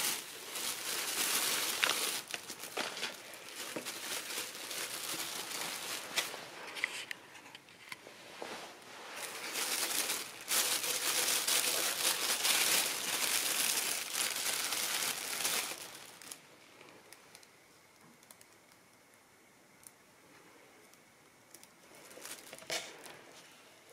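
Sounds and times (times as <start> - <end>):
plastic bags crinkling: 0.0 - 7.1, 9.0 - 16.5, 21.6 - 23.2.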